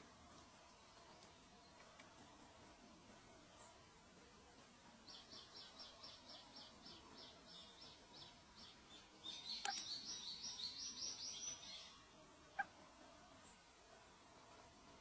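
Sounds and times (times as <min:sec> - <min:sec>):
nestlings begging chirps: 0:05.1 - 0:11.9.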